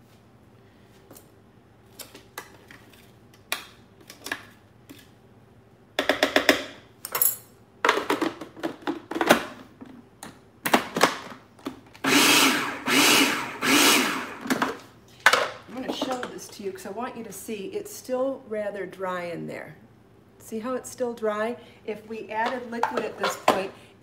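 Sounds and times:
food processor chopping herbs: 12.0 - 14.7.

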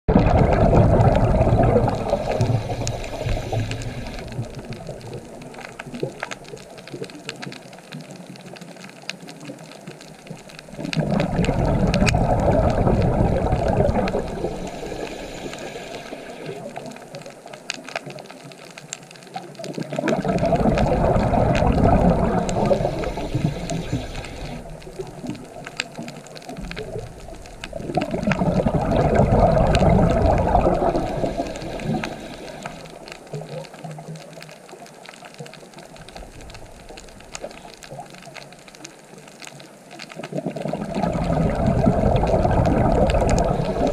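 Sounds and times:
diver's exhaled bubbles: 0.1 - 6.3, 10.6 - 17.0, 19.7 - 33.7, 40.2 - 43.9
faint crackling clicks: 0.1 - 43.9.

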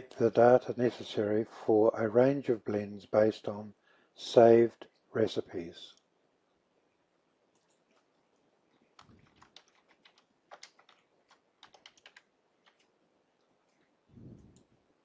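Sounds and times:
keyboard typing: 9.0 - 12.9.

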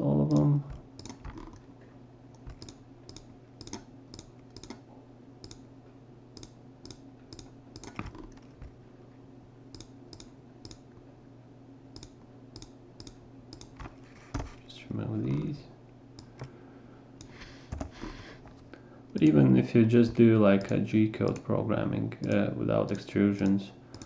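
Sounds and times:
faint low hum: 0.0 - 24.0
keyboard keystrokes: 0.3 - 1.6, 2.4 - 4.8, 6.4 - 8.6
mouse clicks: 2.3 - 4.8, 6.4 - 8.4, 9.7 - 10.8, 12.0 - 14.5, 22.2 - 24.0.

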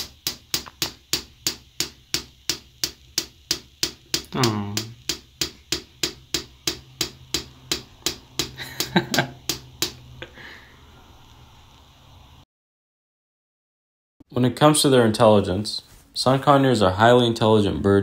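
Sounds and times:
parrot beak tapping on mirror: 0.0 - 10.0.

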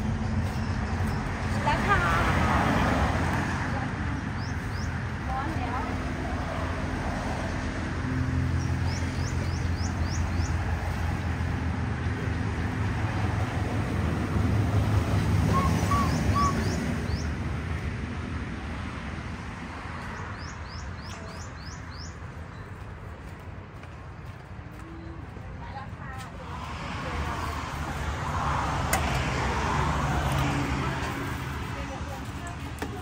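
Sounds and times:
street traffic rumbling: 0.0 - 33.0
small bird chirping: 15.5 - 17.3.

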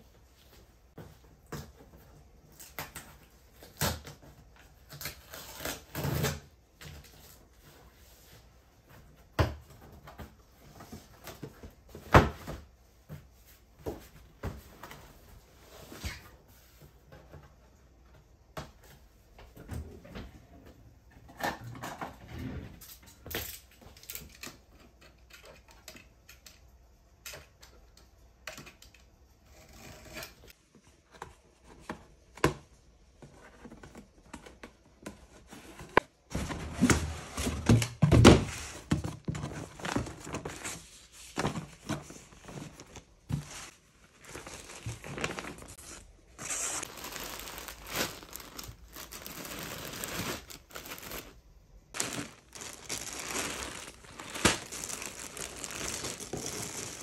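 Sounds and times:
plastic bags crinkling: 42.2 - 57.0
packing tape tearing: 46.4 - 51.4, 52.0 - 57.0.

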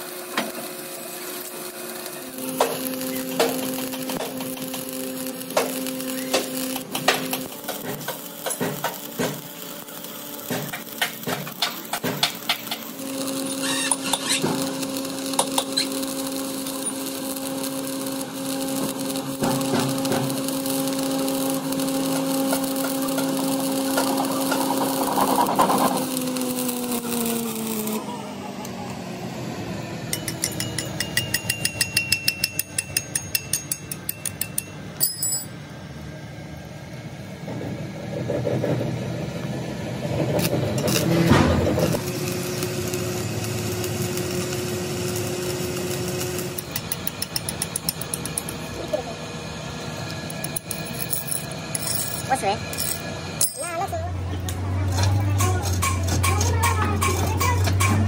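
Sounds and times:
welding arc crackling: 0.0 - 28.0, 30.1 - 35.0, 41.8 - 55.0.

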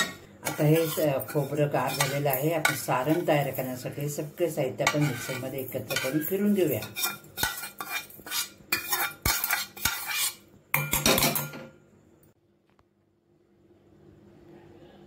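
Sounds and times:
metal spoon scraping pan: 0.0 - 11.6.

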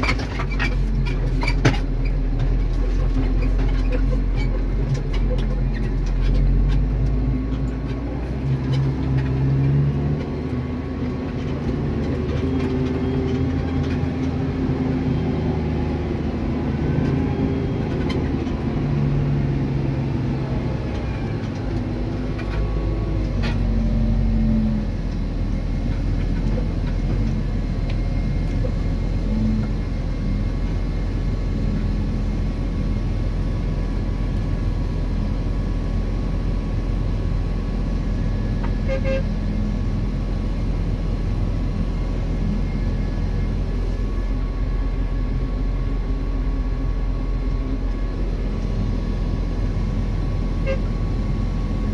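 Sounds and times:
diesel engines droning: 0.0 - 51.9.

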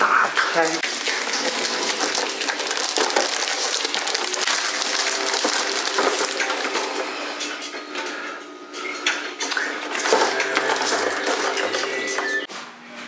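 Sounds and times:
plastic bag tearing and crumpling: 0.8 - 6.9.

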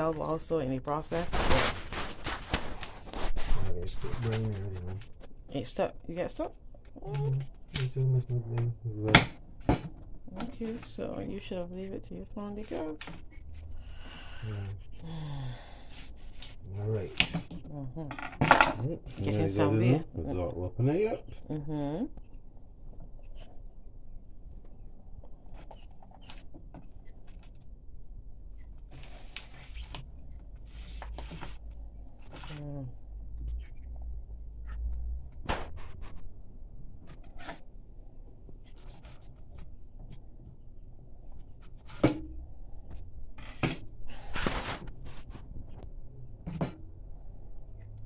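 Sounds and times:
rustling scrape: 0.8 - 5.0, 43.4 - 45.8.

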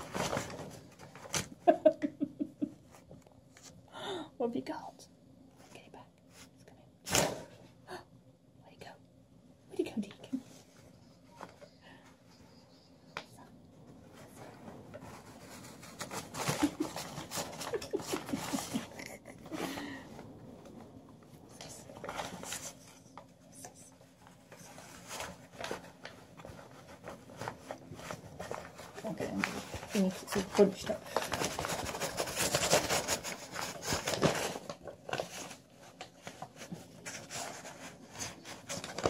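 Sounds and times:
paper scraping on door and carpet: 24.6 - 39.0.

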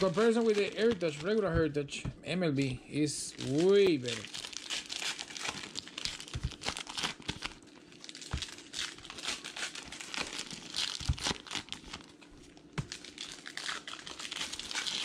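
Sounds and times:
plastic wrapper crinkling and tearing: 0.0 - 1.8, 3.2 - 15.0.

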